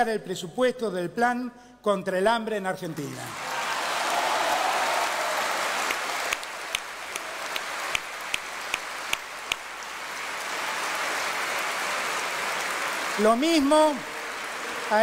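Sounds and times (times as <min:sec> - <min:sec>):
audience applauding: 0:03.0 - 0:15.0
single sharp claps: 0:05.8 - 0:09.7.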